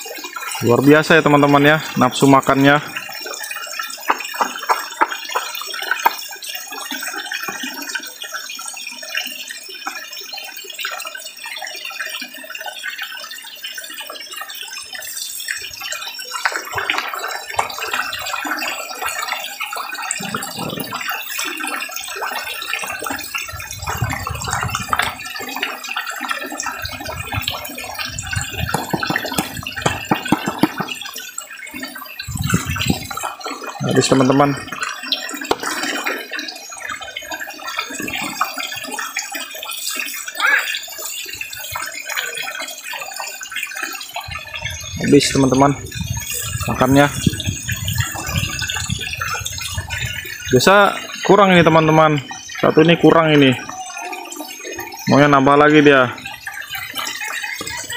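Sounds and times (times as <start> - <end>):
fish splashing at water surface: 2.8 - 11.2, 14.2 - 33.8.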